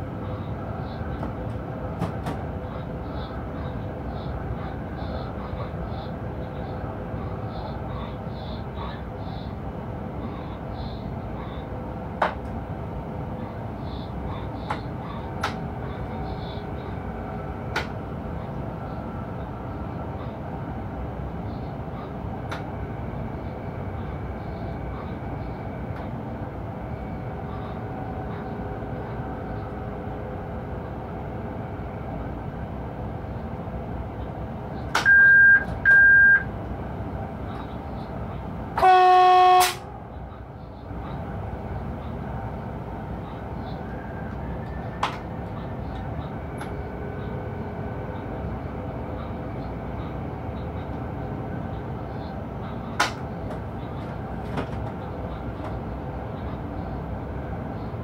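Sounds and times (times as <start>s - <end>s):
locomotive cab running noise: 0.0s - 58.0s
short electronic beeps: 35.0s - 36.5s.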